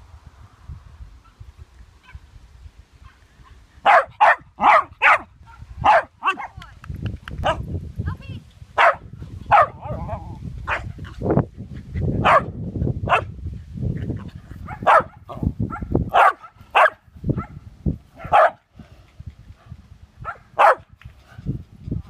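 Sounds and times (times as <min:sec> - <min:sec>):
dog barking: 0:03.8 - 0:06.5, 0:08.8 - 0:10.1, 0:12.2 - 0:12.5, 0:13.1 - 0:13.3, 0:14.6 - 0:17.6, 0:18.2 - 0:18.6, 0:20.2 - 0:20.8.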